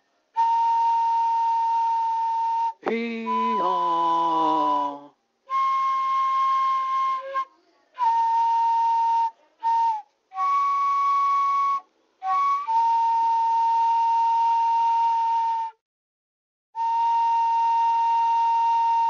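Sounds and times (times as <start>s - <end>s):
breathy flute playing: 0.3s - 15.8s, 16.8s - 19.0s.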